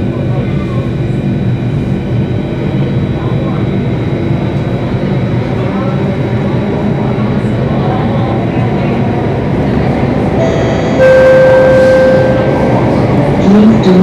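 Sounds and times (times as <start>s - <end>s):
train rumbling through tunnel: 0.0s - 14.0s
two-note chime: 10.4s - 12.8s.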